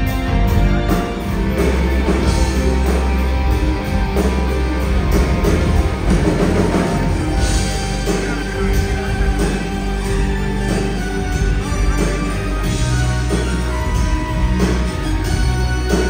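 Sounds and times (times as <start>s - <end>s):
bass guitar: 0.0s - 16.0s
drum kit: 0.0s - 16.0s
electric guitars: 0.0s - 16.0s.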